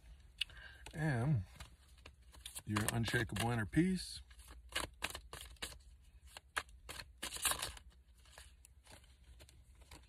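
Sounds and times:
cards being shuffled: 1.5s - 10.0s.

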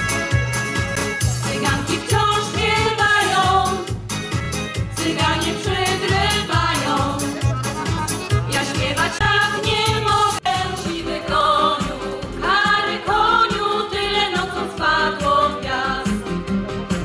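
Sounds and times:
amplified music with bass beat: 0.0s - 12.4s
women's choir singing over pa: 1.5s - 3.9s, 5.0s - 7.2s, 8.6s - 16.2s.

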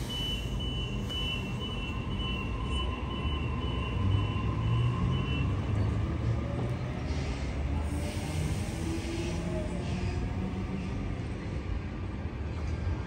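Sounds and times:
train rumbling on rails: 0.0s - 13.0s.

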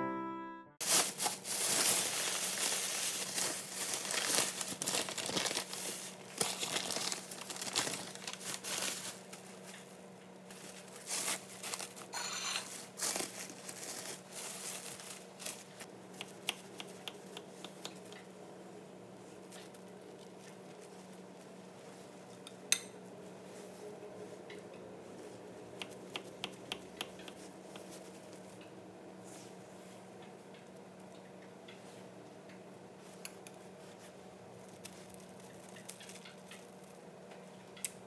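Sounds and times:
plastic wrap crinkling: 0.8s - 15.9s, 33.8s - 37.0s.

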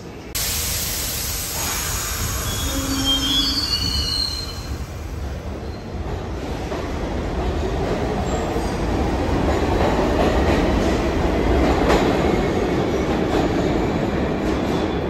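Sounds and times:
subway train rumbling: 0.0s - 15.0s
train wheels squealing: 1.6s - 6.0s.

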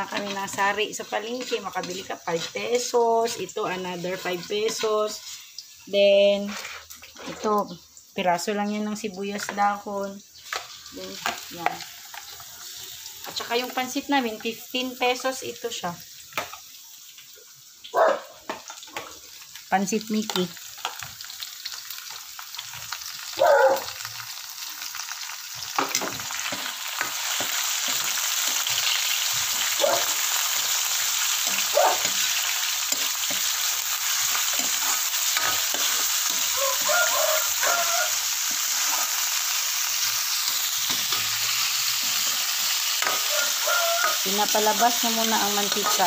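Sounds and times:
metal spatula scraping pan: 0.0s - 5.4s, 6.4s - 7.6s, 25.8s - 39.1s, 40.4s - 44.6s, 45.5s - 46.0s
meat sizzling in a wok: 0.0s - 46.0s.

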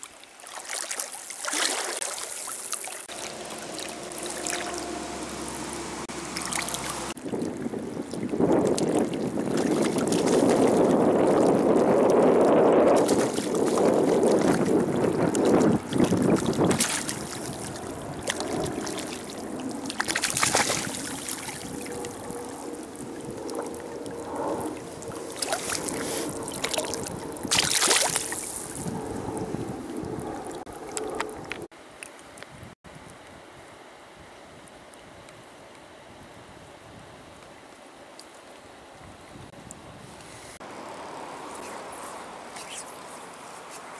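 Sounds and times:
rushing river water: 0.0s - 23.0s, 24.9s - 28.8s
fish splashing at surface: 0.4s - 28.8s
wind on microphone: 3.1s - 31.7s, 32.4s - 34.4s.

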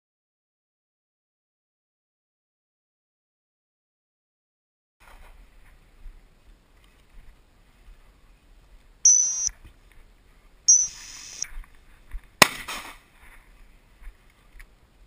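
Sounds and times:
dog whistle blasts: 9.1s - 9.5s, 10.7s - 11.4s
gunshot: 12.4s - 13.0s.

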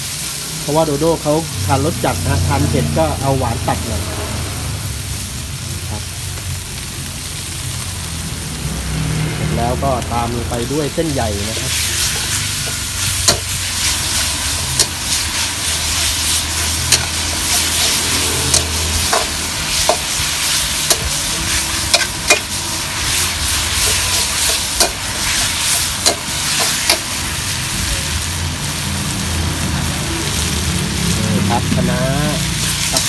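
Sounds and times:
food sizzling in a wok: 0.0s - 33.0s
metal spatula scraping and clanking: 11.4s - 27.1s.

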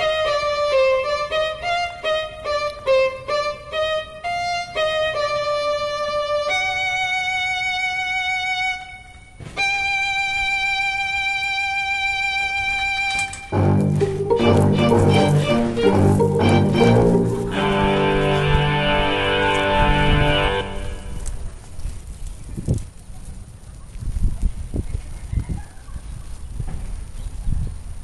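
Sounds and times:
solo violin: 0.0s - 21.3s.

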